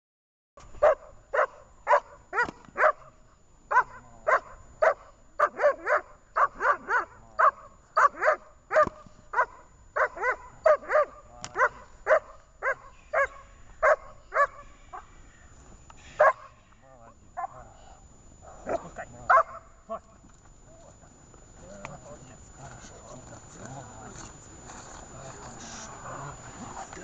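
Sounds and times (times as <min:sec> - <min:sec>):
dog barking forcefully: 0:00.8 - 0:03.1, 0:03.7 - 0:14.6, 0:16.2 - 0:16.5, 0:18.6 - 0:19.7.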